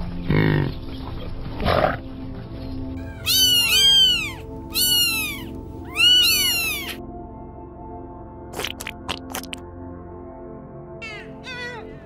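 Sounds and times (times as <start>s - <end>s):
soft background music: 0.0s - 12.0s
high-pitched mewing animal calls: 3.0s - 7.0s, 11.0s - 12.0s.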